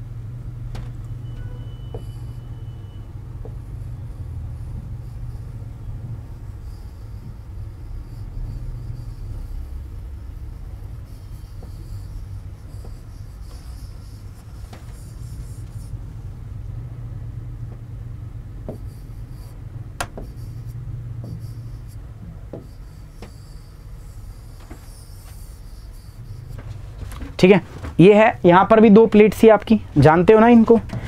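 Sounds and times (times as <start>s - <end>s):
low hum: 0.0s - 27.3s
pen scratching on whiteboard: 1.2s - 16.9s, 18.4s - 27.5s
pen tapping on board: 18.6s - 20.6s, 21.2s - 21.6s, 22.5s - 23.5s.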